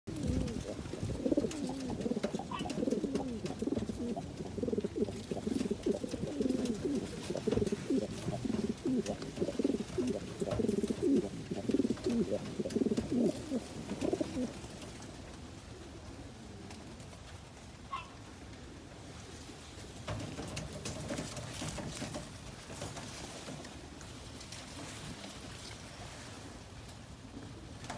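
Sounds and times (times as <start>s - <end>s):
pigeon cooing: 0.1s - 14.6s.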